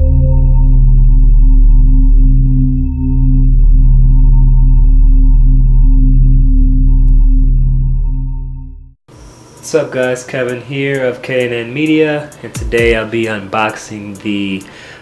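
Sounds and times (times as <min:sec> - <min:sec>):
low electronic drone: 0:00.0 - 0:09.0.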